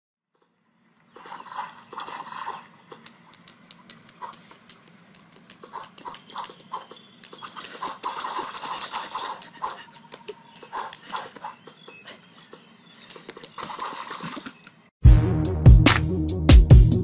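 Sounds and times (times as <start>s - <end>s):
claws tapping on glass screen: 2.9s - 11.5s.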